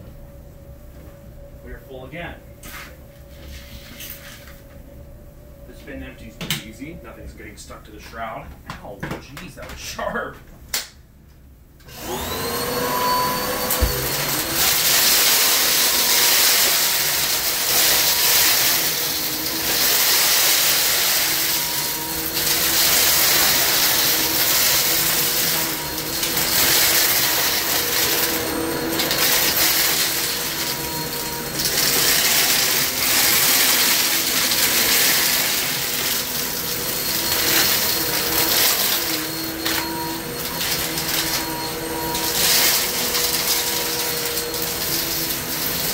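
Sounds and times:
vacuum cleaner motor whine: 0.0s - 8.3s, 11.8s - 45.9s
wood chips crunching in vacuum: 11.9s - 45.9s.

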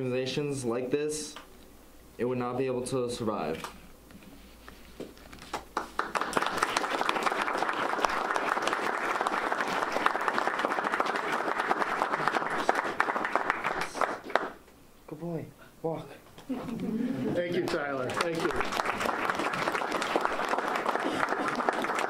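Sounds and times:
audience applauding: 5.5s - 14.6s, 17.6s - 22.0s.

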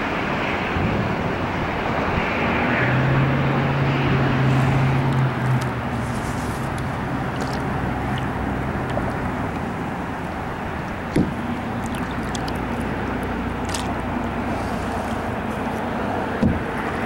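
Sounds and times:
rushing water and air: 0.0s - 17.0s
short hollow knock: 16.4s - 16.6s.

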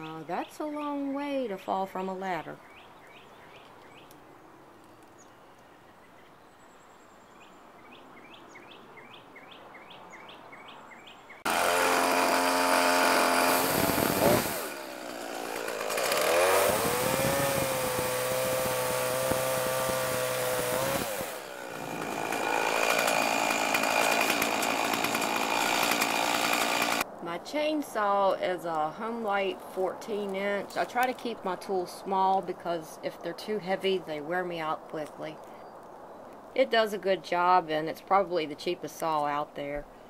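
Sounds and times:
bird chirping: 2.1s - 11.5s
chainsaw cutting branch: 11.5s - 27.1s.

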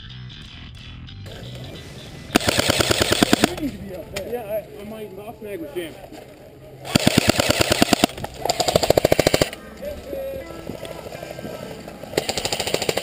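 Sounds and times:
airsoft rifle automatic bursts: 2.3s - 3.6s, 6.8s - 9.6s, 12.1s - 13.0s.

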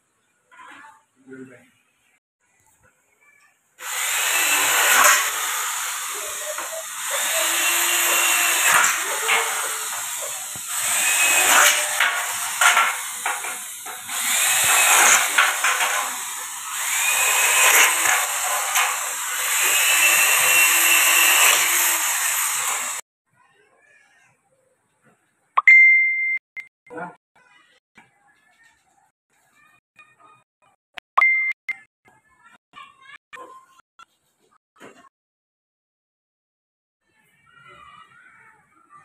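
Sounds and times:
electric drill boring through metal: 3.8s - 23.0s.

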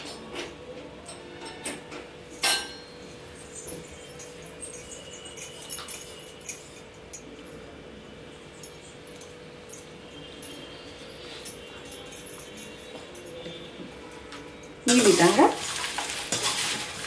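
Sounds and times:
cornflakes rattling in a steel bowl: 14.9s - 17.0s.

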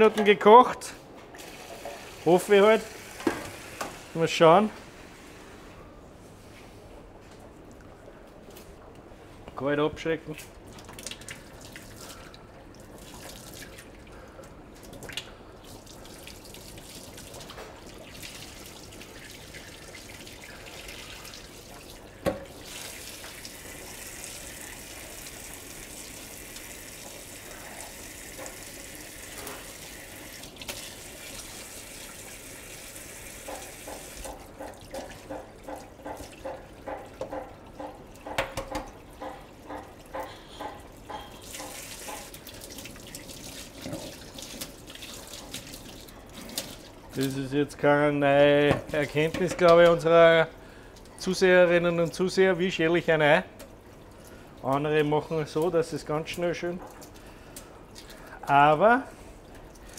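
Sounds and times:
tap water running into sink: 1.4s - 4.1s, 14.9s - 47.3s.

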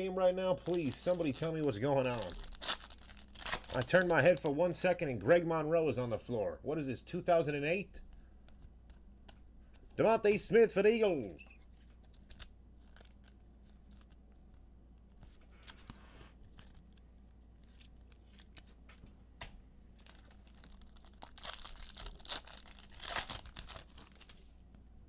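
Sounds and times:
wrapper tearing and crinkling: 0.6s - 4.6s, 11.9s - 14.2s, 20.0s - 24.6s.

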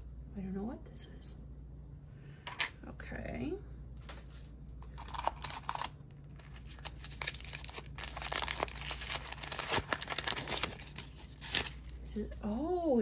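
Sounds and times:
paper wrapper crumpling and tearing: 4.8s - 12.1s.

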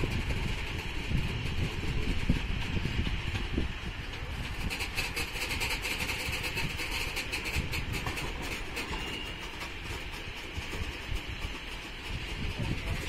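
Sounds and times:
train wagons rumbling past: 0.0s - 13.0s
metallic clicks of wheels: 2.6s - 13.0s.

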